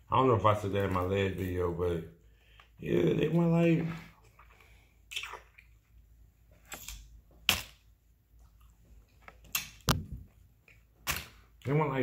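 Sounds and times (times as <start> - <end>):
wet mouth eating sounds: 4.1 - 5.9.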